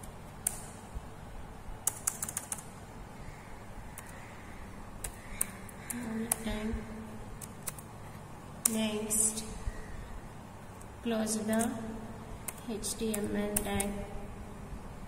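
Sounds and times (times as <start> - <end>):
keyboard keys clicking: 1.8 - 2.7, 5.0 - 6.6, 7.3 - 7.9, 10.8 - 11.8, 12.4 - 14.0.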